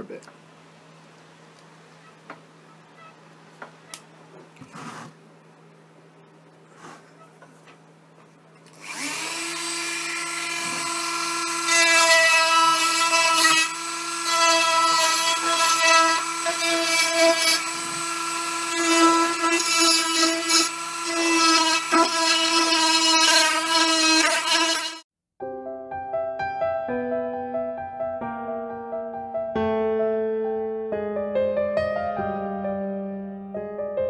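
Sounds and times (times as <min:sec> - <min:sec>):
rotary bit carving wood: 0:08.7 - 0:25.0
rotary tool whining: 0:08.7 - 0:25.0.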